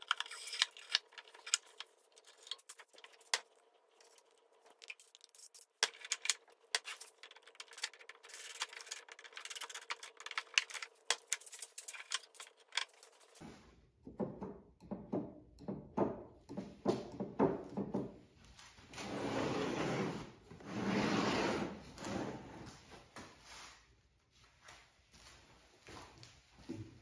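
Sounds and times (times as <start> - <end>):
plywood parts knocking and clacking: 0.0 - 13.4, 14.0 - 18.2.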